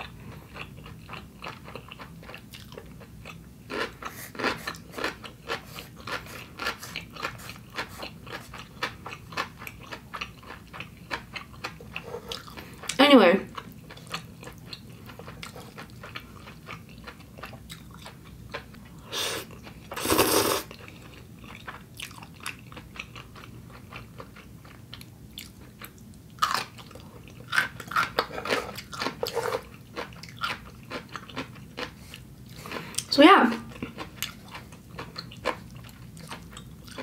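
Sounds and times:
wet chewing: 33.7s - 37.0s.

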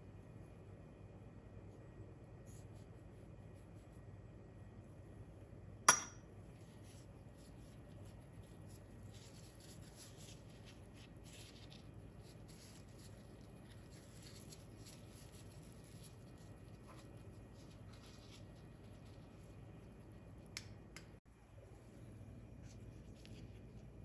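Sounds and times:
metal spoon clinking glass bowl: 5.9s - 6.2s
plastic gloves rustling: 6.4s - 20.5s, 21.6s - 24.0s.

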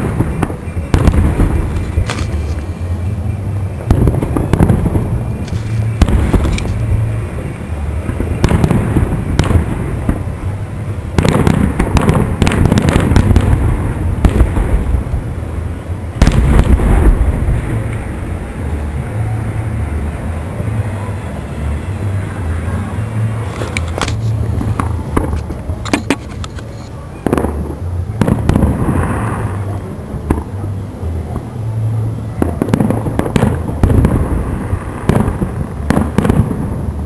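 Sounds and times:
firework shells bursting: 0.0s - 2.8s, 3.9s - 7.0s
rolling rumble: 0.0s - 37.0s.

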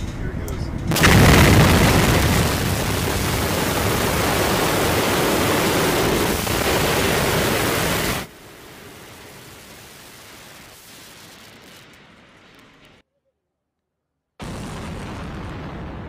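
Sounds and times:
rumble of falling debris: 0.9s - 13.0s.

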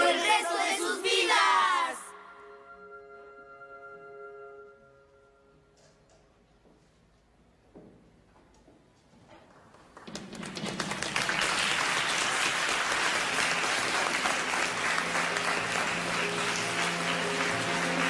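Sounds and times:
soft sustained music notes: 0.2s - 6.6s, 13.0s - 18.0s
audience applause: 9.7s - 18.0s.

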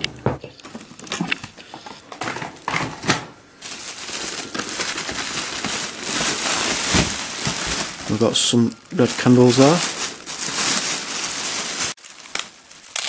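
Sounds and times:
plastic bag rustling and crinkling: 0.5s - 13.0s
items knocking in cardboard box: 4.5s - 8.1s.

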